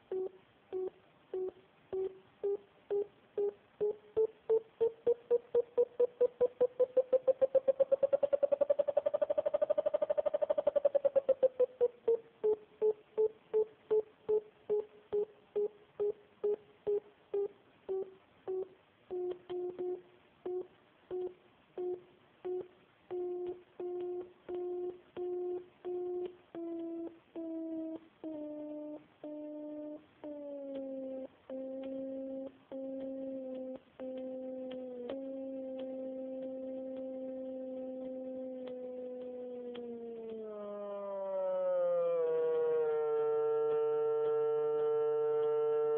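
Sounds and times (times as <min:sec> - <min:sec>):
electronic beeps falling in pitch: 0:10.7 - 0:36.3.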